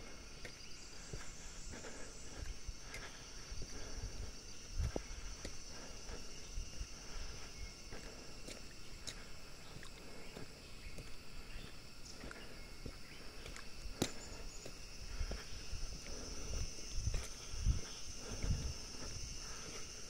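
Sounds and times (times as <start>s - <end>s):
insect chorus: 0.0s - 20.0s.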